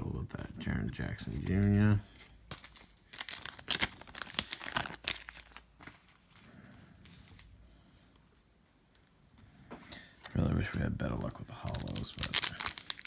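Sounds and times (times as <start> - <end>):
cards rustling and snapping: 1.2 - 6.5, 10.2 - 13.0.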